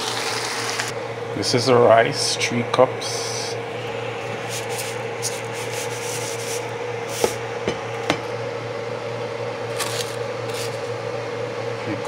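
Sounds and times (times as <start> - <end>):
steady low hum: 0.0 - 12.0
rice rustling in plastic bowl: 9.7 - 11.0.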